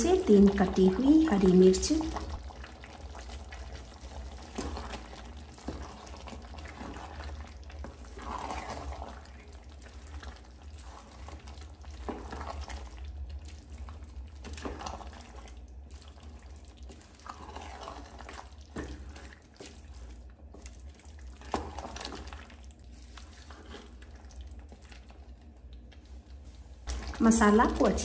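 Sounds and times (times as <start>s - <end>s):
spatula scraping pot: 0.0s - 12.9s, 16.2s - 24.8s
food sizzling and squelching: 0.0s - 28.0s.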